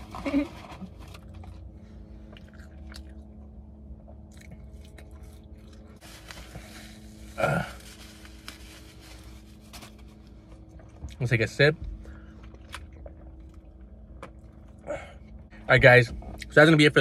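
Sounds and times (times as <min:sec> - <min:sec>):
faint low hum: 0:00.0 - 0:17.0
person chewing: 0:02.2 - 0:06.0.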